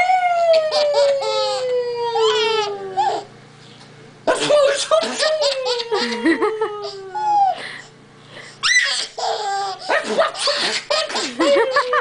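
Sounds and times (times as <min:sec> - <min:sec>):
baby giggling: 0:00.4 - 0:03.3, 0:05.0 - 0:07.6, 0:08.6 - 0:12.0
baby squealing: 0:00.5 - 0:03.3, 0:08.6 - 0:11.2.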